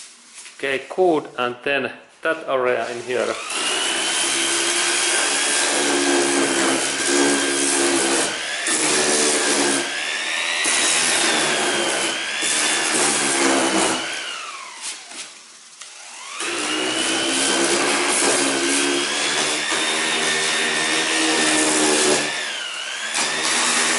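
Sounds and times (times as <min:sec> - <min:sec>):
sander scuffing on plastic: 0:00.0 - 0:01.2, 0:02.1 - 0:03.4, 0:14.7 - 0:15.5.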